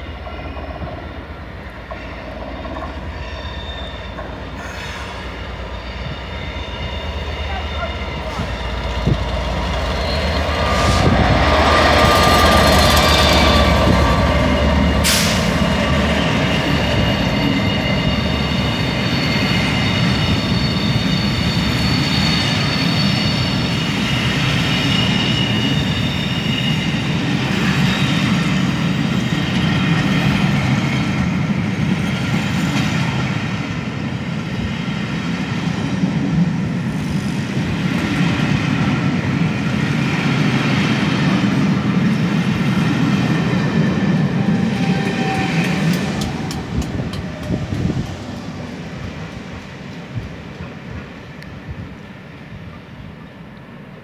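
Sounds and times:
diesel locomotive engine rumbling: 0:00.0 - 0:54.0
train coaches rolling: 0:00.0 - 0:54.0
high wheel squeals: 0:01.9 - 0:28.4, 0:43.6 - 0:47.9.

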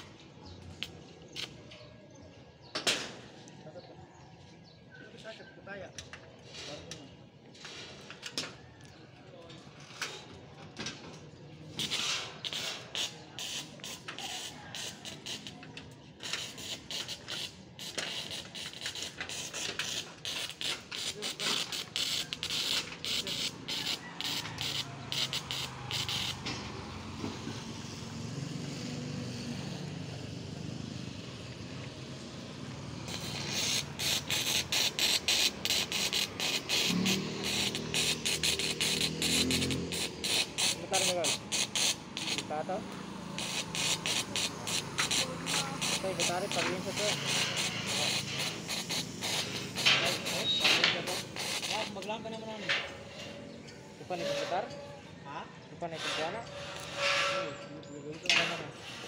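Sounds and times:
arc welding crackle: 0:11.8 - 0:28.0, 0:32.1 - 0:52.6.

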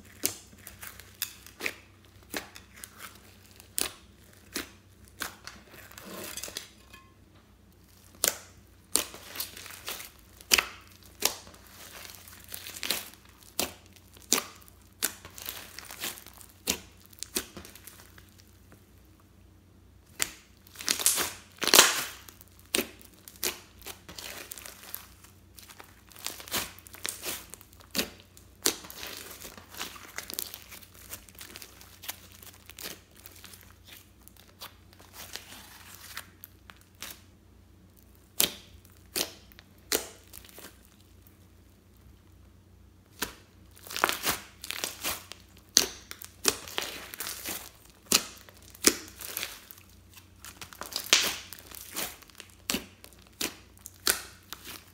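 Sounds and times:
slime popping and crackling: 0:07.8 - 0:18.5, 0:20.1 - 0:37.3, 0:43.1 - 0:54.9.

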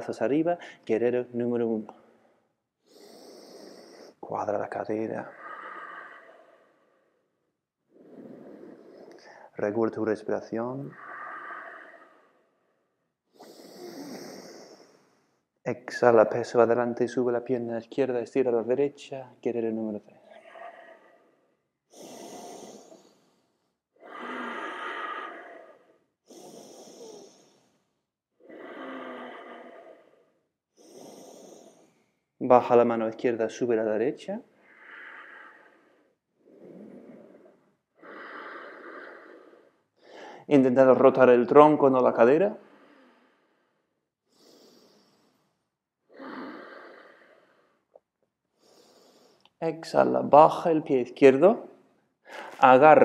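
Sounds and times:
person inhaling: 0:00.6 - 0:00.8, 0:02.1 - 0:04.2, 0:05.2 - 0:09.6, 0:10.8 - 0:15.4, 0:20.2 - 0:32.1, 0:34.6 - 0:40.5, 0:42.6 - 0:45.6, 0:46.2 - 0:47.9, 0:48.6 - 0:49.6, 0:52.3 - 0:52.7
person breathing deeply: 0:02.0 - 0:10.0, 0:10.7 - 0:15.5, 0:20.2 - 0:32.3, 0:34.5 - 0:40.9, 0:41.8 - 0:49.6, 0:52.3 - 0:52.7
person exhaling: 0:05.2 - 0:07.3, 0:07.9 - 0:09.6, 0:24.0 - 0:27.8, 0:28.4 - 0:32.0, 0:52.3 - 0:52.7.

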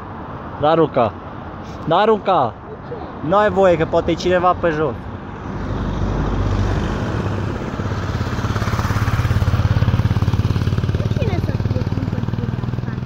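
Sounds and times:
vehicle engine pulsing: 0:06.6 - 0:13.0.

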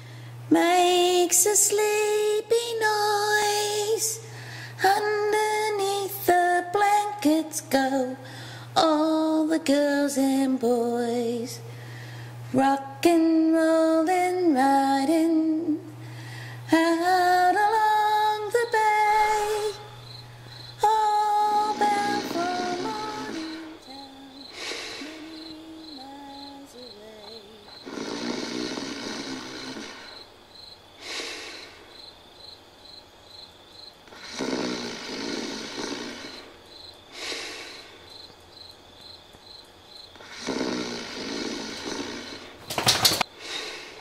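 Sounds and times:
person snoring: 0:19.1 - 0:30.3, 0:34.1 - 0:36.5, 0:40.2 - 0:42.6
short low moans: 0:21.3 - 0:24.3.

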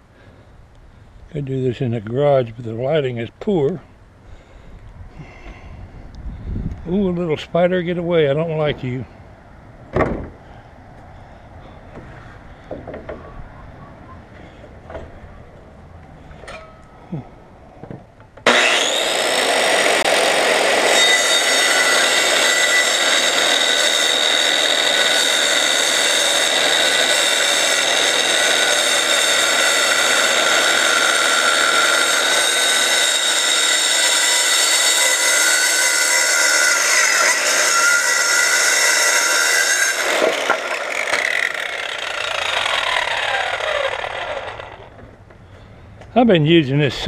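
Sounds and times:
saw blade spinning down: 0:18.4 - 0:45.0
circular saw cutting wood: 0:18.4 - 0:45.1.

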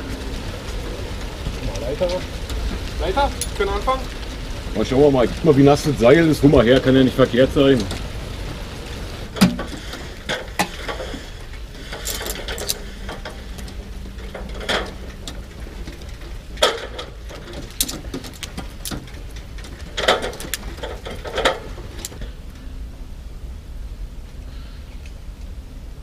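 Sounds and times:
steady low rumble: 0:00.0 - 0:26.0
sharp knocks and clicks: 0:09.3 - 0:11.2, 0:11.9 - 0:22.2.

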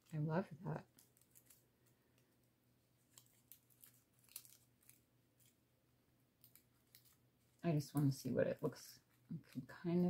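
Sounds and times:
paper pieces rustling and ticking: 0:00.8 - 0:02.3, 0:03.0 - 0:05.6, 0:06.4 - 0:08.3.

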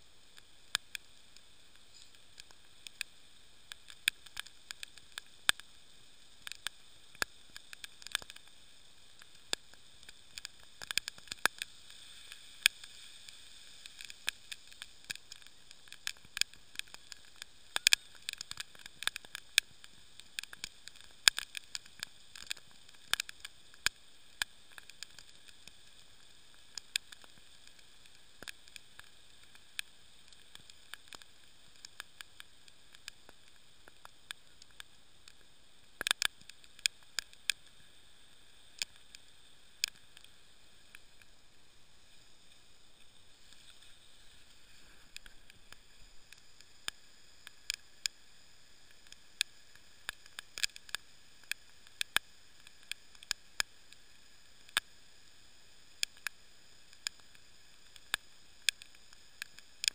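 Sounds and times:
heavy rain hissing: 0:37.1 - 0:48.8.

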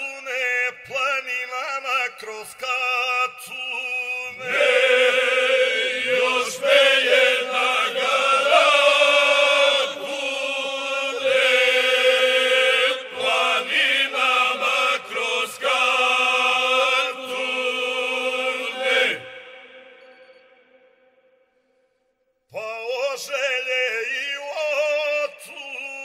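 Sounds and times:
group singing chant-like song: 0:04.3 - 0:20.5.

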